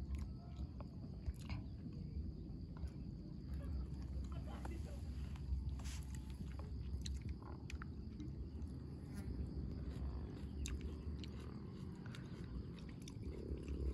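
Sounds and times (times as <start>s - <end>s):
steady low rumble: 0.0s - 13.9s
person chewing noodles: 6.4s - 13.9s.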